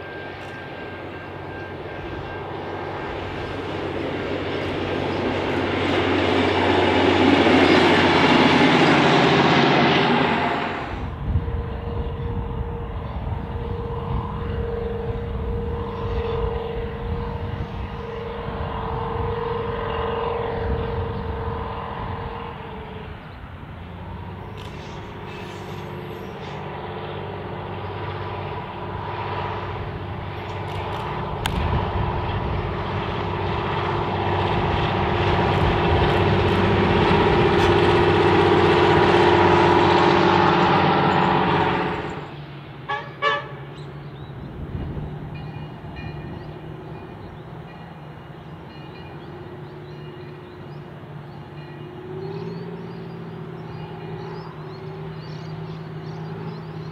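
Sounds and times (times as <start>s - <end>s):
diesel engine approaching: 0.0s - 56.9s
train horn blast: 7.8s - 23.2s, 33.3s - 42.2s, 42.8s - 43.7s.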